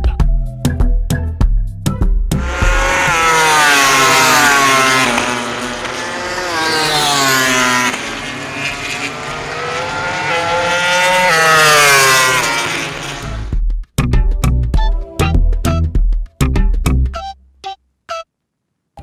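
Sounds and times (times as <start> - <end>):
racing motorcycles passing by: 2.4 - 13.5.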